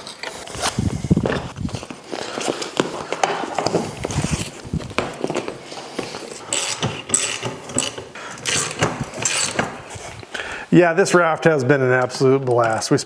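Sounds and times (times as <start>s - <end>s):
metal clicks and clanks: 6.4s - 9.8s.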